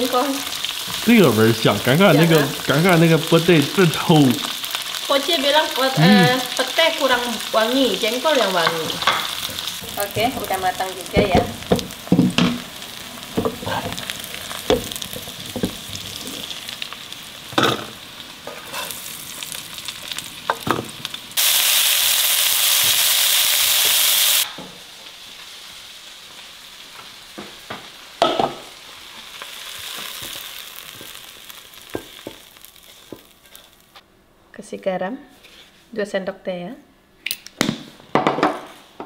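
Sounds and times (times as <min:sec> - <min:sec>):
food sizzling in oil: 0:00.0 - 0:34.0
spatula knocking and scraping pan: 0:08.6 - 0:12.6.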